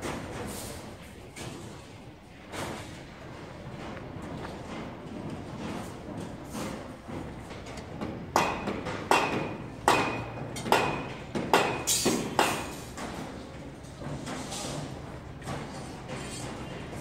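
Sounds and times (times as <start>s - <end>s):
hammer striking metal: 8.4s - 12.9s.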